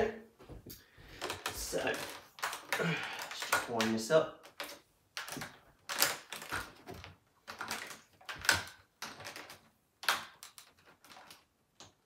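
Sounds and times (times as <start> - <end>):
plastic clicks and knocks: 0.6 - 12.0.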